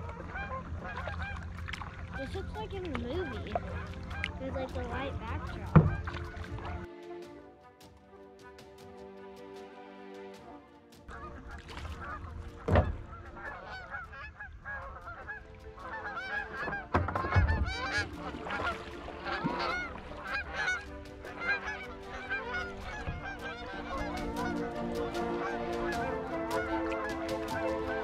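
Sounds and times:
geese honking: 0.0s - 28.0s
dull low thump: 3.5s - 6.8s, 12.4s - 13.4s, 16.6s - 18.0s.

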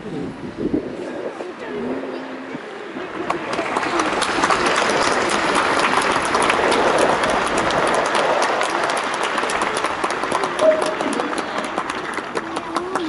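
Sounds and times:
large crowd applauding: 3.0s - 13.0s.

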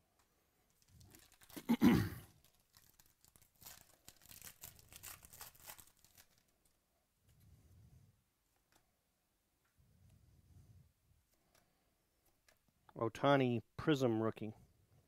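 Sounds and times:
foil crinkling: 0.7s - 6.8s
foil wrapper tearing: 0.8s - 6.8s.

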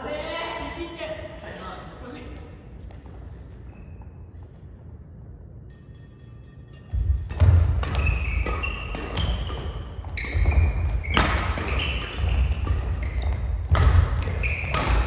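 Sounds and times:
shoes squeaking: 2.7s - 4.8s, 7.8s - 15.0s
rackets hitting shuttlecock: 6.0s - 15.0s.

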